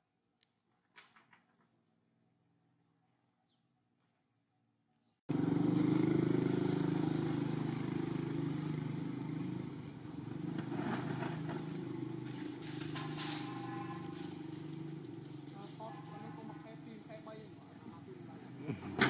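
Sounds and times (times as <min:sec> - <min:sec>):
motorcycle engine running: 0:05.3 - 0:19.0.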